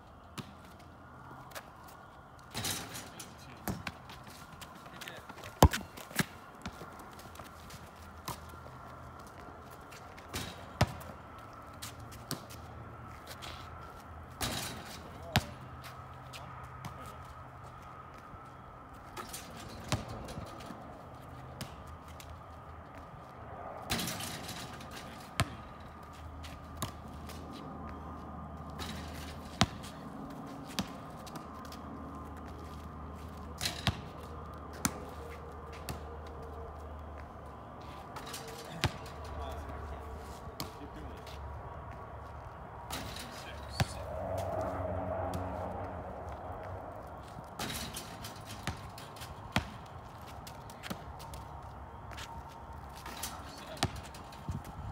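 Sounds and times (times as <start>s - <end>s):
basketball bouncing on asphalt: 0.3s - 0.8s, 3.6s - 4.7s, 5.3s - 12.7s, 14.3s - 17.2s, 19.2s - 20.8s, 21.4s - 23.1s, 23.9s - 37.3s, 38.2s - 39.2s, 47.0s - 54.8s
basketball thudding on asphalt: 5.5s - 6.8s, 10.3s - 11.1s, 25.4s - 25.7s, 28.8s - 30.0s, 30.7s - 31.8s, 33.6s - 34.1s, 47.6s - 49.8s, 53.8s - 54.1s.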